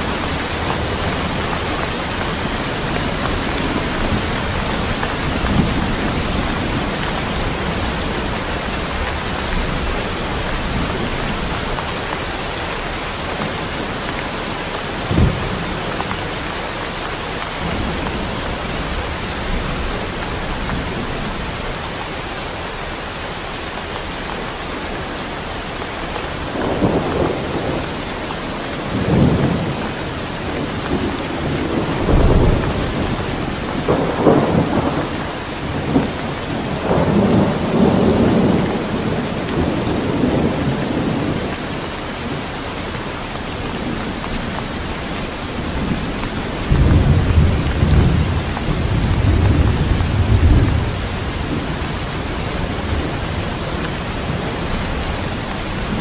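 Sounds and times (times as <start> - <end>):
thunder rumbling: 0.0 - 16.0, 26.0 - 41.7, 43.6 - 56.0
rain on a corrugated roof: 0.0 - 56.0.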